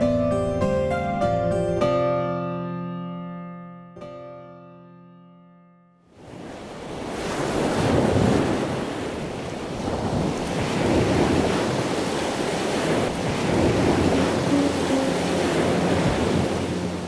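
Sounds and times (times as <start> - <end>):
piano chord: 0.0 - 6.0, 13.6 - 17.0
river rushing: 6.2 - 17.0.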